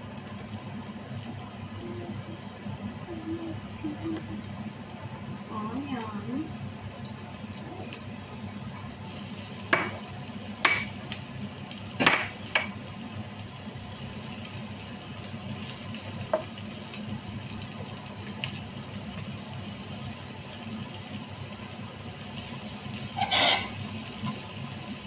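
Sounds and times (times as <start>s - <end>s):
spatula knocking against pan: 10.6s - 10.9s
spatula stirring onion in pan: 21.3s - 25.0s.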